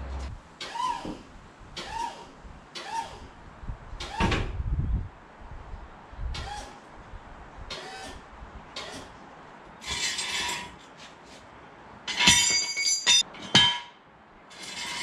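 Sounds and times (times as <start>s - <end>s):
metal scraping: 9.8s - 11.2s, 14.5s - 15.0s
ringing metal clanks: 12.1s - 14.0s.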